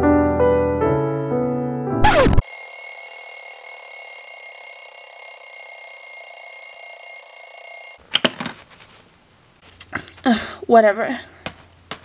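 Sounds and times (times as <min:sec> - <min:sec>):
alarm clock ringing: 0:02.4 - 0:08.0.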